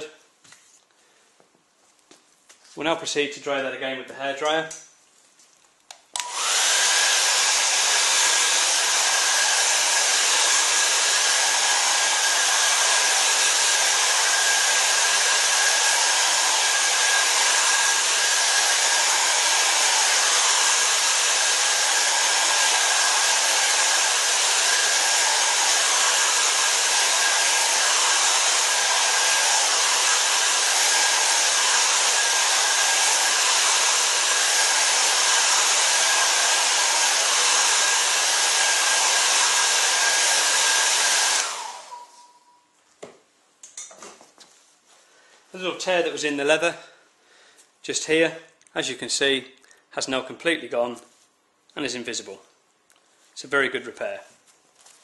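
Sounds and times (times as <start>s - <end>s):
hair dryer blowing: 6.1s - 42.4s.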